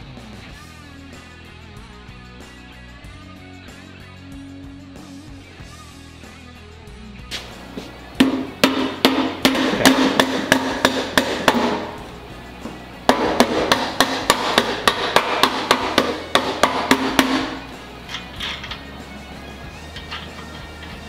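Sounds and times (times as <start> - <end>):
rubber mallet tapping metal axle: 8.2 - 12.0, 13.1 - 17.6.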